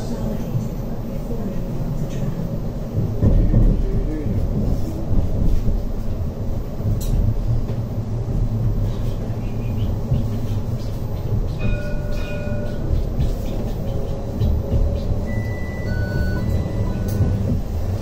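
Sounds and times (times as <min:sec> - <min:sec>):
tram rumbling: 0:00.0 - 0:18.0.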